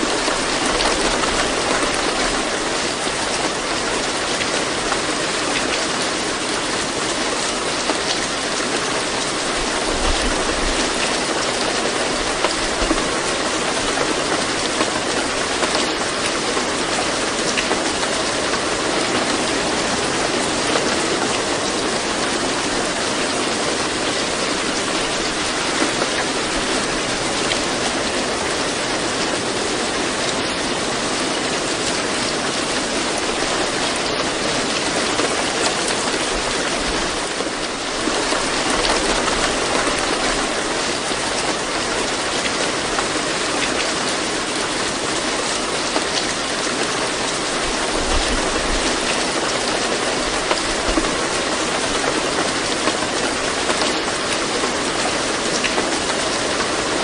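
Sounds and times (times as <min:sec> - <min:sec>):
steady rain hiss: 0:00.0 - 0:57.0.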